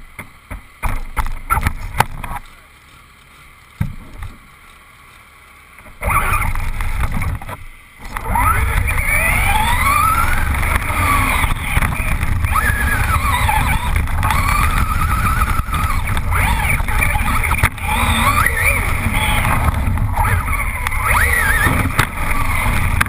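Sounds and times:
car driving over gravel: 0:05.9 - 0:23.0
rc car engine revving: 0:05.9 - 0:23.0.

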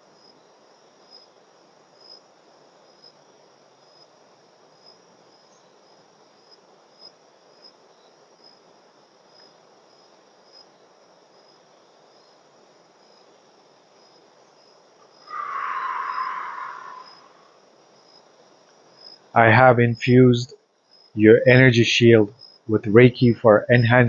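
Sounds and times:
crickets chirping: 0:00.0 - 0:24.0
loud hissing: 0:15.2 - 0:17.6.

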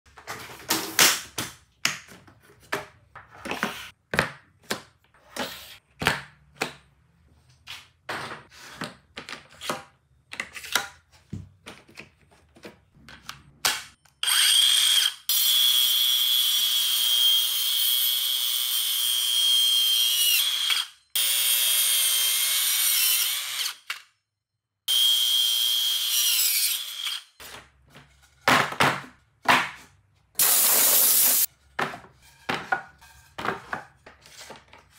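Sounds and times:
circular saw cutting wood: 0:14.2 - 0:24.0, 0:24.9 - 0:27.4, 0:30.4 - 0:31.5.

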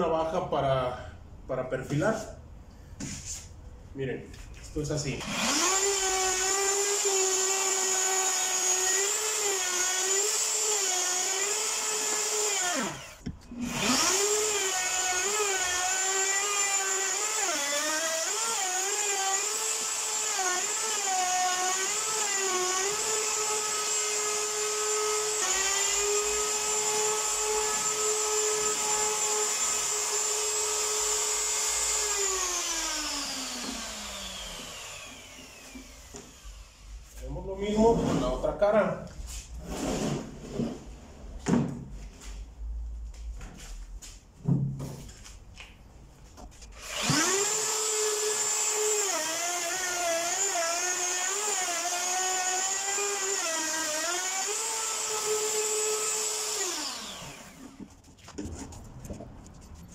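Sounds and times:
electric router running: 0:18.1 - 0:36.8, 0:46.8 - 0:57.8.

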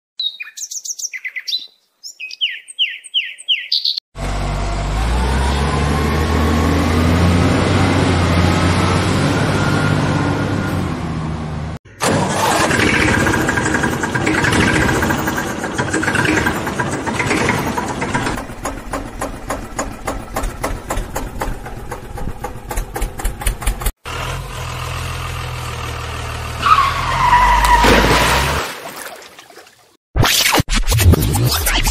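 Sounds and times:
high chirping: 0:00.2 - 0:04.0
engine starting and revving: 0:04.2 - 0:28.6
engine knocking beat: 0:12.0 - 0:24.3.

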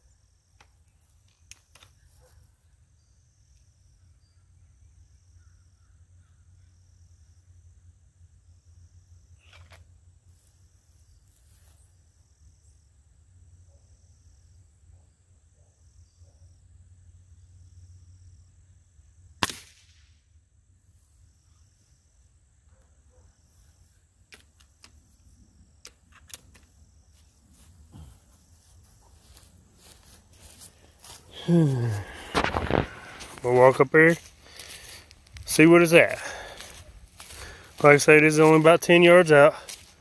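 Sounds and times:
air rifle shot crack: 0:19.4 - 0:20.2.

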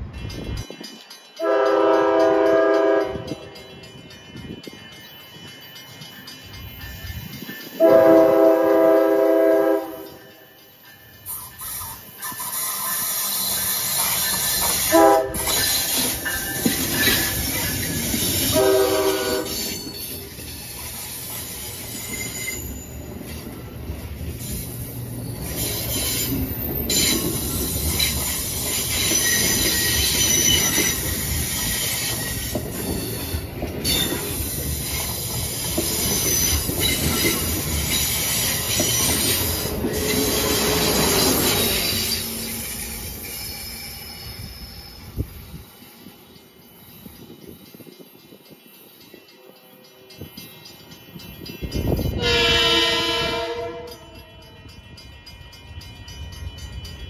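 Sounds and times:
train wheels rumbling on rail: 0:00.0 - 0:57.0
train horn blasts: 0:01.4 - 0:03.6, 0:07.8 - 0:10.2, 0:14.9 - 0:15.6, 0:18.5 - 0:19.7, 0:52.1 - 0:54.6
wheel squeal: 0:19.5 - 0:23.1, 0:24.4 - 0:35.2, 0:35.9 - 0:45.2.

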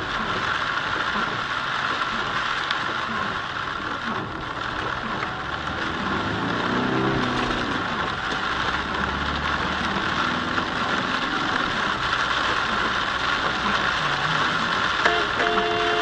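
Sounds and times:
car engine running low: 0:00.0 - 0:15.8
rain and tyre hiss: 0:00.0 - 0:16.0.

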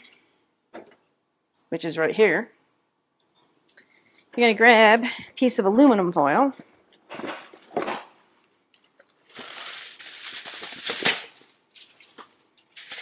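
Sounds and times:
aluminum foil crinkling: 0:07.1 - 0:13.0
foil ripping: 0:09.1 - 0:13.0.

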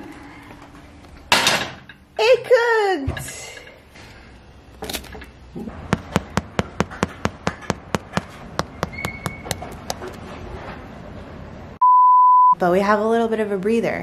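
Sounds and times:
fingertips tapping bread crust: 0:05.9 - 0:10.2.

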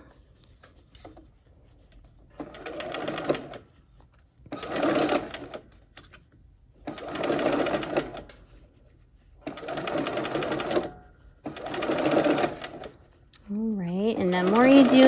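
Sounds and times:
sewing machine stitching: 0:02.4 - 0:03.7, 0:04.5 - 0:05.8, 0:06.8 - 0:08.4, 0:09.4 - 0:13.1, 0:13.9 - 0:15.0.

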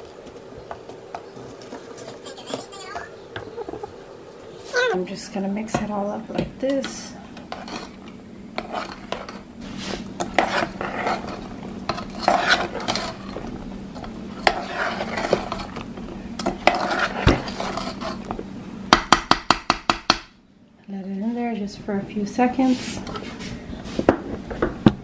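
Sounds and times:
metal spoon stirring in saucepan: 0:06.7 - 0:18.3.

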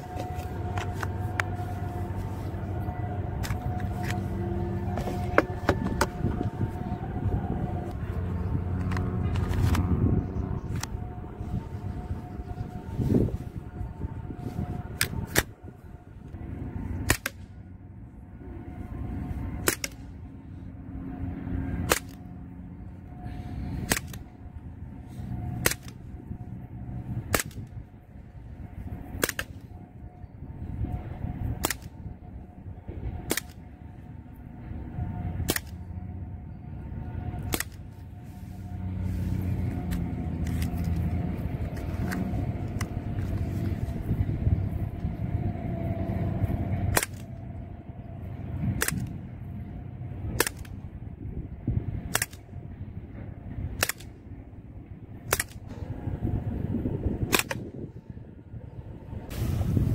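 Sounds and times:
low rumble: 0:00.0 - 0:59.9
air pistol shots: 0:29.2 - 0:29.6.

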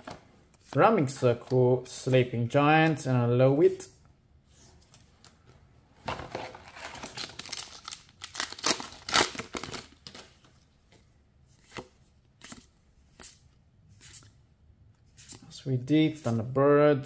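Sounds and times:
foil wrapper tearing and crinkling: 0:06.9 - 0:10.0.

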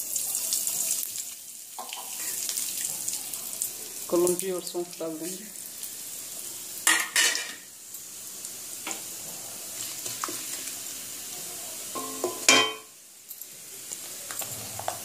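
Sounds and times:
seeds sizzling in hot oil: 0:00.0 - 0:15.0
small crackles: 0:13.2 - 0:15.0.

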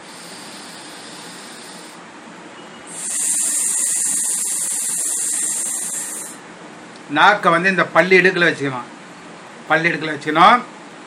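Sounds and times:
man breathing: 0:00.0 - 0:02.0, 0:02.9 - 0:06.4
man hissing breath out: 0:00.0 - 0:02.0, 0:02.9 - 0:06.4.

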